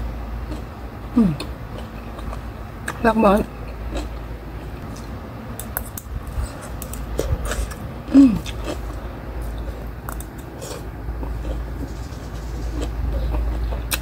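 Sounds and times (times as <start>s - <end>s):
person chewing: 0.4s - 14.0s
person humming with enjoyment: 1.2s - 1.5s.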